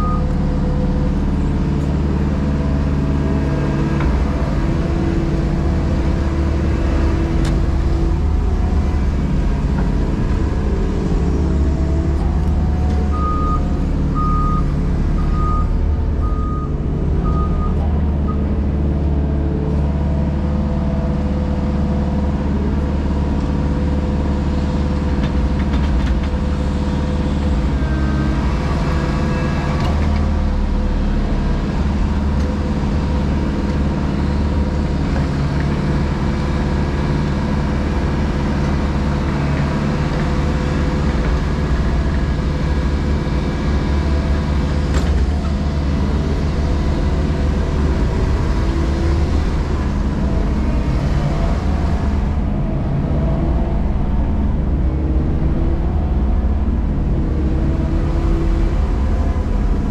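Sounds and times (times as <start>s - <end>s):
diesel engine running: 0.0s - 59.9s
reversing alarm beeps: 13.2s - 18.4s.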